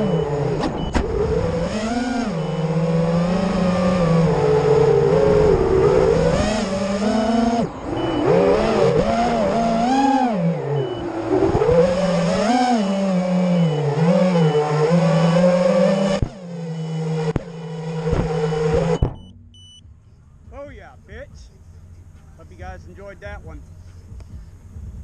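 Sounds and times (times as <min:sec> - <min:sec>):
drone motors whining: 0:00.0 - 0:19.8.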